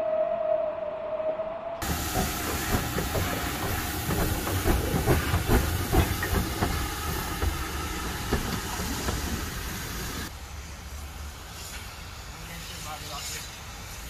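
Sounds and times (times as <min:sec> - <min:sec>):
metal knocks and clanks: 0:01.8 - 0:09.6
steam locomotive hissing: 0:01.8 - 0:14.0.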